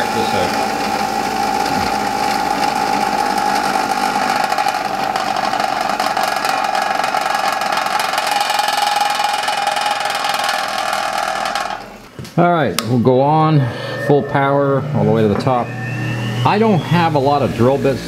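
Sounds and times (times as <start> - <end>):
bench grinder running: 0.0 - 12.0.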